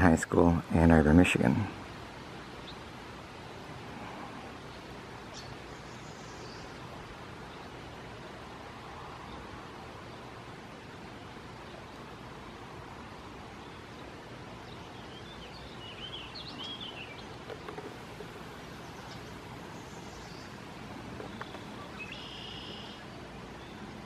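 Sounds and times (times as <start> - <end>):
songbirds chirping: 0.0 - 24.0
buzzy bird trill: 14.8 - 23.9.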